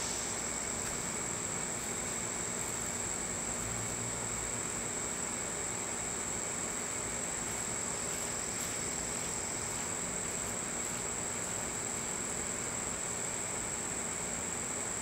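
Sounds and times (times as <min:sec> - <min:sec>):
background hiss: 0:00.0 - 0:15.0
insect chorus drone: 0:00.0 - 0:15.0.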